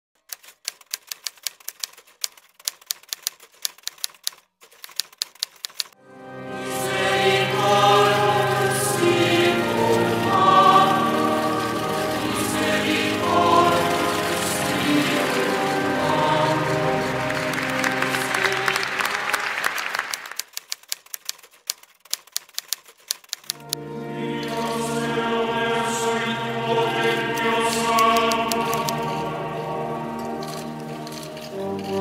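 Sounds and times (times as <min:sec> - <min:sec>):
sharp quick clicks: 0:00.2 - 0:06.0, 0:20.1 - 0:23.8, 0:27.4 - 0:29.3
choir singing slow chant: 0:06.0 - 0:19.7, 0:23.7 - 0:32.0.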